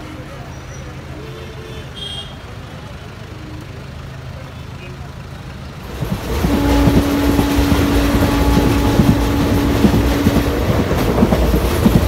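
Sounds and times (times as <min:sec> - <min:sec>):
steady train hum: 0:00.0 - 0:12.0
train rumbling inside coach: 0:00.0 - 0:12.0
wheels knocking over rail joints: 0:05.8 - 0:12.0.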